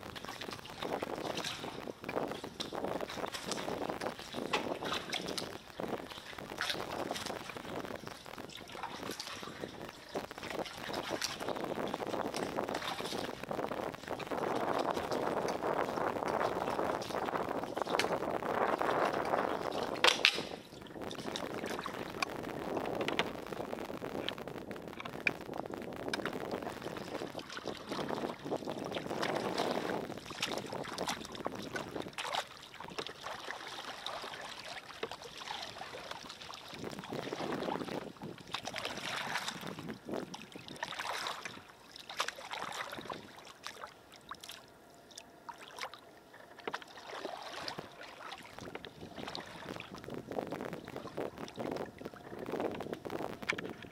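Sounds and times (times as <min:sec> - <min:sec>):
water splashing around kayak: 0:00.0 - 0:53.9.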